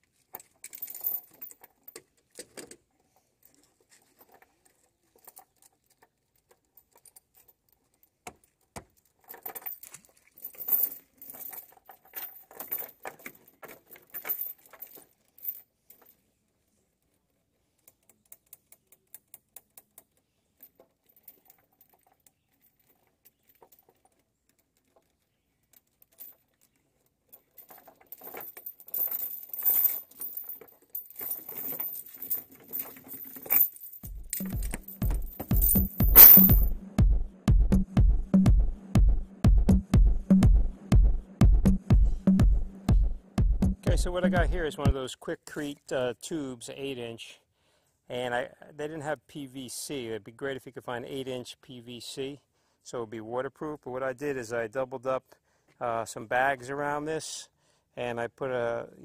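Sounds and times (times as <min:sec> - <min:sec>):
metal chain clinking and rattling: 0:00.2 - 0:02.7, 0:03.4 - 0:16.4, 0:17.7 - 0:36.7.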